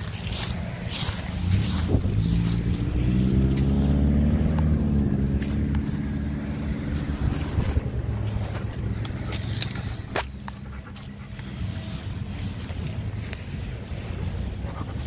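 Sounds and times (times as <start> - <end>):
car driving past: 1.0 - 10.1.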